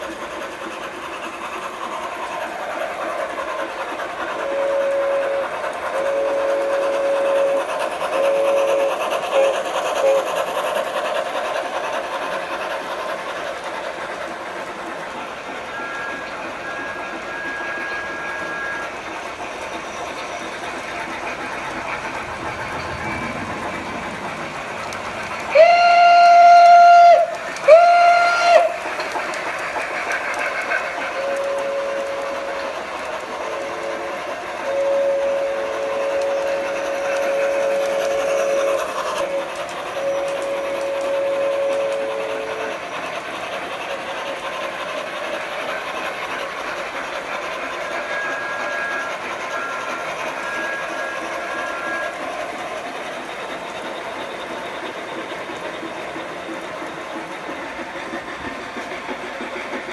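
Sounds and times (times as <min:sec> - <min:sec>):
model trains rolling on track: 0:00.0 - 0:59.9
model steam whistle through speaker: 0:04.3 - 0:11.0, 0:15.6 - 0:19.2, 0:25.4 - 0:42.8, 0:47.0 - 0:53.1.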